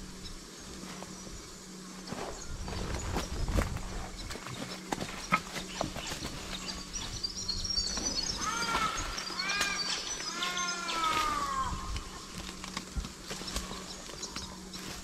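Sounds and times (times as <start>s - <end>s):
footsteps crunching through leaves: 0.7s - 15.0s
birds chirping and calling: 1.2s - 15.0s
twigs snapping: 11.0s - 15.0s.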